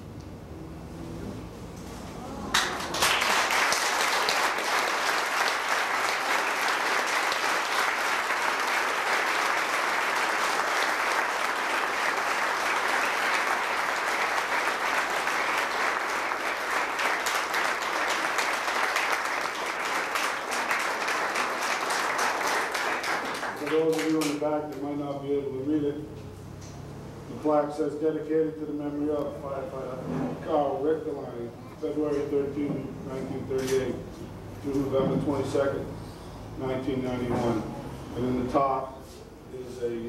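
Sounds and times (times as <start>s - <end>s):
audience applauding: 2.4s - 24.4s.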